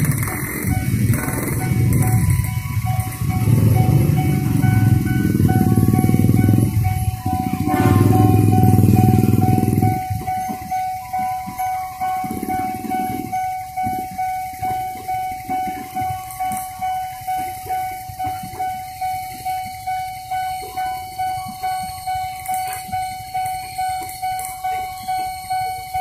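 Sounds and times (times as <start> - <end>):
electric train passing: 0.0 - 26.0
level-crossing warning bell: 0.0 - 26.0
train horn: 1.4 - 10.2.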